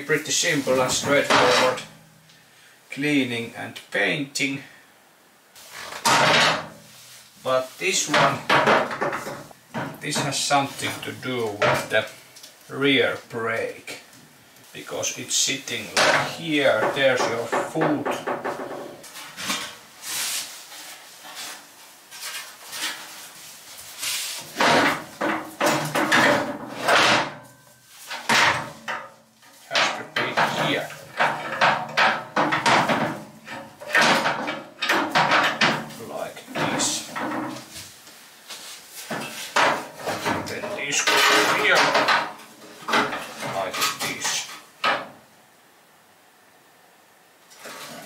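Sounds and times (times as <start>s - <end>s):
metal clanking and scraping: 0.4s - 2.0s, 5.8s - 6.9s, 7.9s - 12.0s, 24.4s - 37.8s, 39.0s - 45.2s.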